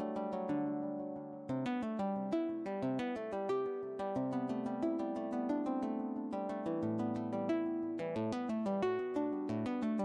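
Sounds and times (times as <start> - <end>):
plucked-string notes: 0.0 - 10.0.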